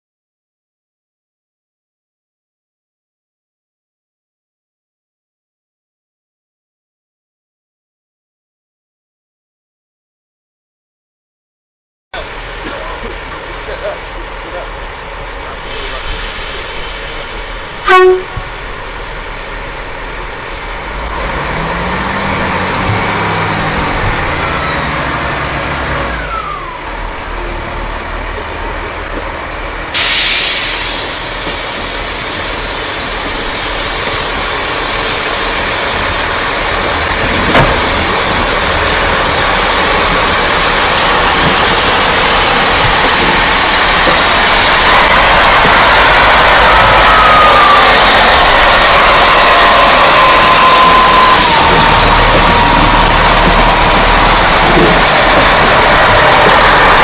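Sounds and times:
diesel train engine: 0:12.2 - 0:57.0
sudden hiss: 0:15.6 - 0:17.8, 0:30.0 - 0:37.0
loud train horn blast: 0:17.8 - 0:18.6.

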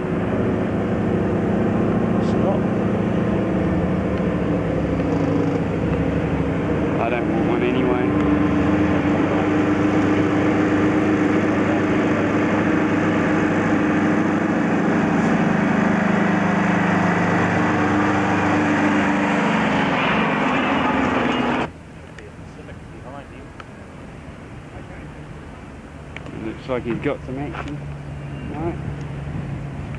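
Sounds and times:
diesel truck engine passing: 0:00.0 - 0:21.7
road and tyre noise: 0:00.0 - 0:29.9.

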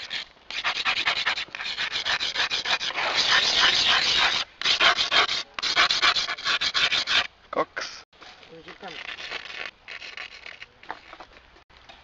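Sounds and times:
scratching on grip tape: 0:08.6 - 0:11.5.

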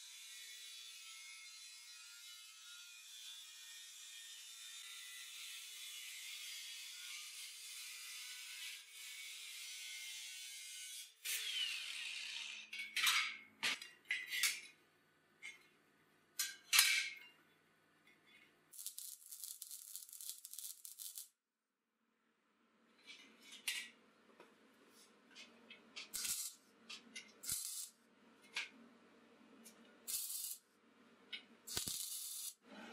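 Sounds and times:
welding crackling: 0:18.8 - 0:21.4, 0:26.1 - 0:26.6, 0:27.4 - 0:28.0, 0:30.1 - 0:30.6, 0:31.7 - 0:32.6
angle grinder cutting steel: 0:31.7 - 0:32.6.

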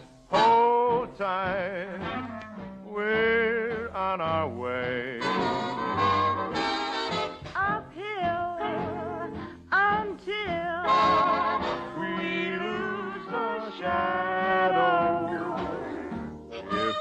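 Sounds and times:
orchestra accompaniment: 0:00.3 - 0:07.5, 0:10.8 - 0:17.0
show-tune singing with vibrato: 0:00.3 - 0:17.0.

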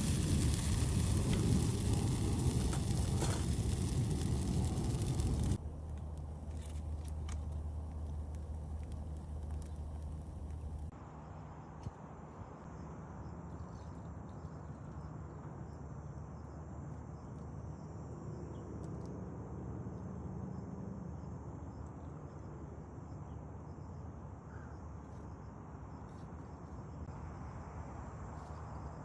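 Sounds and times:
insects trilling: 0:00.0 - 0:05.6
low even hiss: 0:00.0 - 0:12.3.

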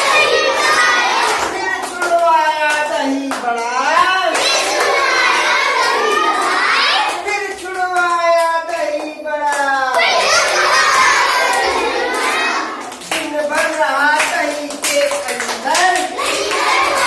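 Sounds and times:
children chanting: 0:00.0 - 0:02.3, 0:03.9 - 0:07.6, 0:09.9 - 0:13.8, 0:15.4 - 0:17.0
hand claps: 0:00.0 - 0:17.0.

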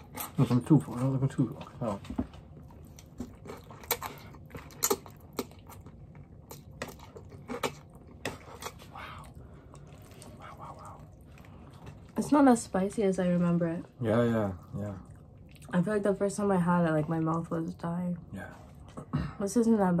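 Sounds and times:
chewing and slurping noodles: 0:00.0 - 0:12.2.

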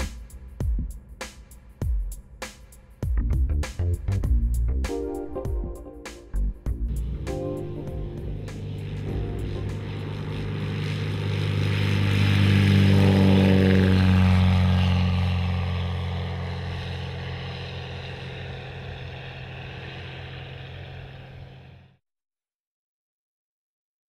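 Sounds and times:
light aircraft engine drone: 0:00.0 - 0:00.6, 0:05.0 - 0:22.0.

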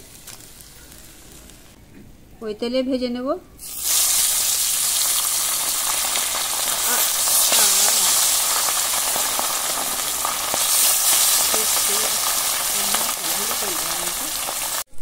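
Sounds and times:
fish sizzling in hot oil: 0:03.6 - 0:14.9.

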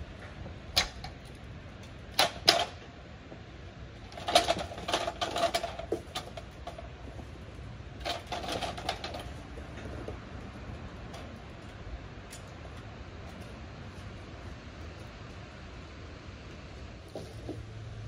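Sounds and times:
metal ladder rattling and clicking: 0:00.8 - 0:01.4, 0:02.1 - 0:02.8, 0:04.0 - 0:14.1.

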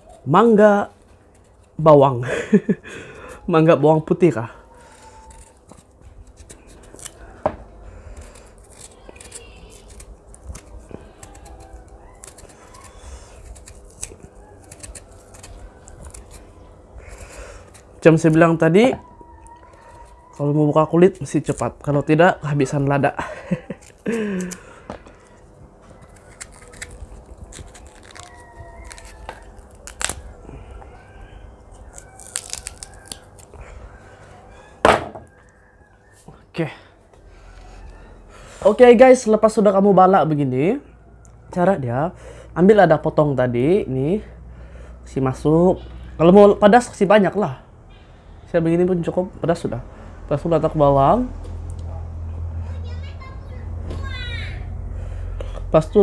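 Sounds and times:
knife peeling mango: 0:00.0 - 0:34.0
chickens calling: 0:27.6 - 0:38.7.

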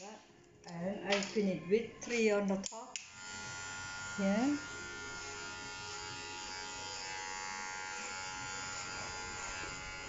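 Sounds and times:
electric hair clippers buzzing: 0:03.0 - 0:10.0.

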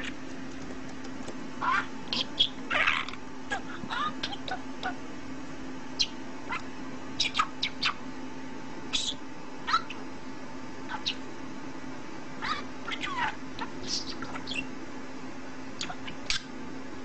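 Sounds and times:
steady low hum: 0:00.0 - 0:17.0
budgerigar chirping: 0:01.6 - 0:05.0, 0:06.0 - 0:06.6, 0:07.2 - 0:08.0, 0:08.9 - 0:10.0, 0:10.9 - 0:11.2, 0:12.4 - 0:14.7, 0:15.8 - 0:16.5.

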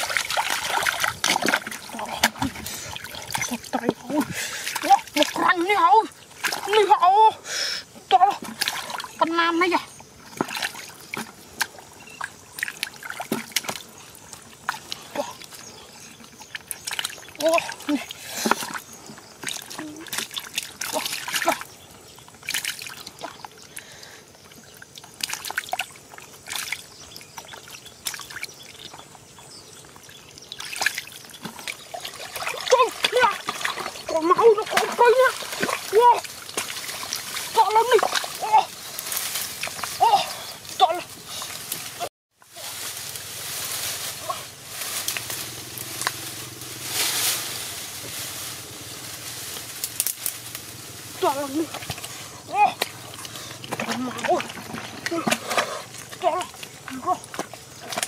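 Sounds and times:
hands splashing in muddy water: 0:00.0 - 0:05.6, 0:30.5 - 0:46.2, 0:51.2 - 0:58.0
branches rustling: 0:30.0 - 0:58.0
swish of leaves: 0:41.5 - 0:51.6
twigs snapping: 0:42.8 - 0:46.3, 0:49.4 - 0:50.8.

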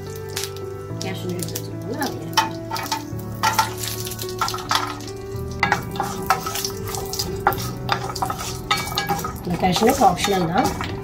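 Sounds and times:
seeds sizzling in hot oil: 0:00.0 - 0:11.0
wooden spatula stirring pan: 0:02.4 - 0:11.0.

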